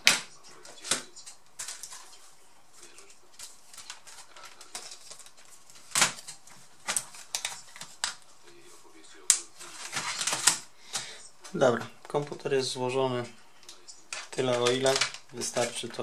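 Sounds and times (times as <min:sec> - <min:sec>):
plastic keyboard clicks and knocks: 0:00.0 - 0:02.1, 0:03.7 - 0:08.2, 0:09.3 - 0:11.1, 0:13.7 - 0:16.0.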